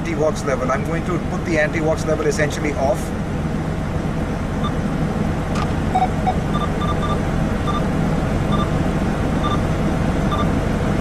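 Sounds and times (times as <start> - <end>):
low rumble of truck cab: 0.0 - 11.0
electronic key beeps: 6.0 - 7.8, 8.5 - 8.7, 9.4 - 9.6, 10.3 - 10.5.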